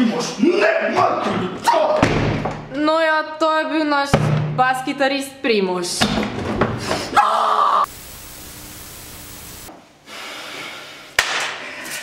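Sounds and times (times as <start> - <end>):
static-like hiss: 7.9 - 9.7.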